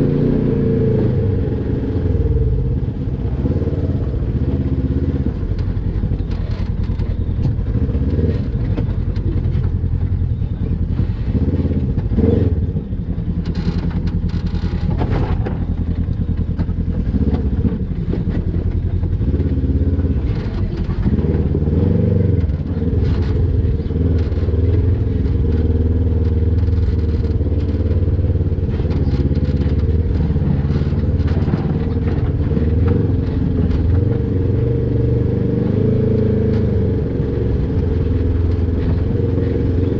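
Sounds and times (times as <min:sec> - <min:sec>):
off-road vehicle engine revving: 0:00.0 - 0:39.9
clunks and clatter on rocks: 0:13.4 - 0:21.8, 0:22.4 - 0:34.3.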